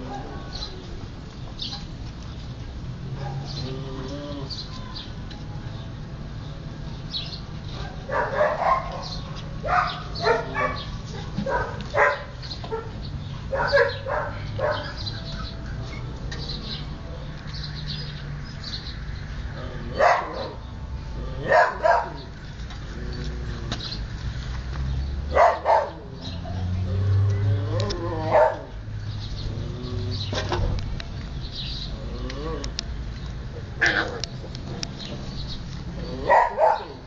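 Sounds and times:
puppies yipping and barking: 0:07.7 - 0:17.3, 0:19.8 - 0:20.7, 0:21.4 - 0:24.0, 0:25.3 - 0:30.8, 0:36.0 - 0:37.0.

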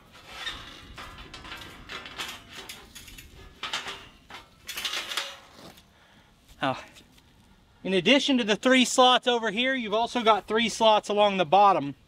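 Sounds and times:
metal panel scraping and clanking: 0:00.0 - 0:05.8.

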